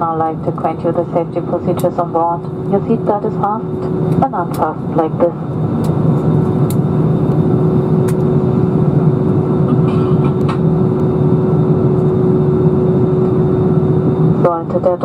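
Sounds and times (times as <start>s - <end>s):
constant humming tone: 0.0s - 15.0s
low jet engine rumble: 0.0s - 15.0s.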